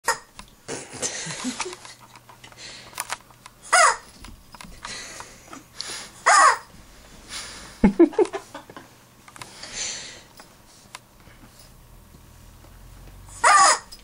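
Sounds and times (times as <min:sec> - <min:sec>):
rubber chicken toy squawking: 0:03.7 - 0:04.1, 0:06.2 - 0:06.7, 0:13.4 - 0:13.9.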